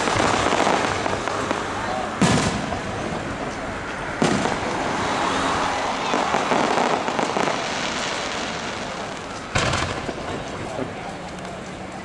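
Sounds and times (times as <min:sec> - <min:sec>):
firework crackling: 0:00.0 - 0:12.0
firework boom: 0:02.2 - 0:03.1, 0:09.5 - 0:10.6.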